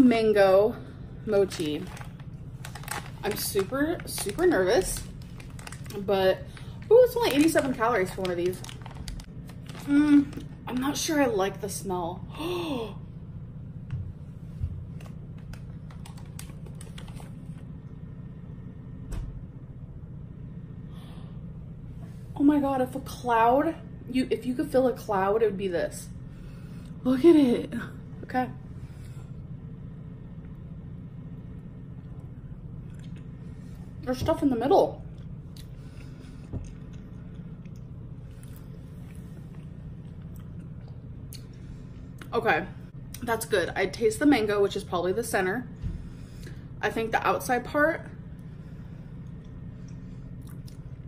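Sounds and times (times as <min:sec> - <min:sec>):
steady low hum: 0:00.0 - 0:51.0
plastic wrapper crinkling: 0:01.4 - 0:11.1, 0:15.0 - 0:17.6.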